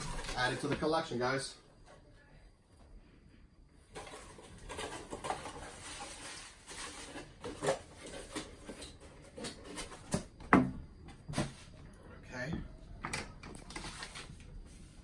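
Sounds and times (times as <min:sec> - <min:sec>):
cardboard and paper rustling: 0:03.9 - 0:10.4, 0:13.5 - 0:15.0.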